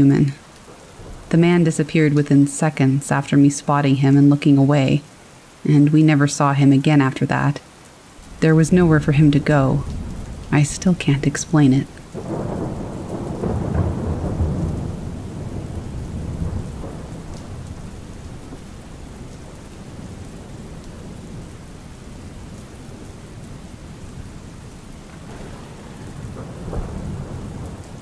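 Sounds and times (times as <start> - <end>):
steady rain: 0.0 - 28.0
rolling thunder: 0.7 - 1.6, 8.1 - 28.0.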